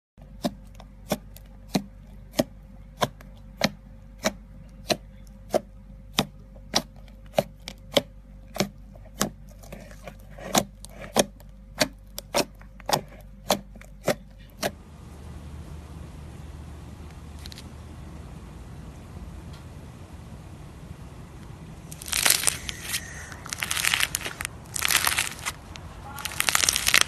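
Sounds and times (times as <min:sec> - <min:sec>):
slime squishing: 0:00.2 - 0:14.8, 0:21.8 - 0:27.0
faint steady hum: 0:00.2 - 0:27.0
slime popping: 0:21.9 - 0:27.0.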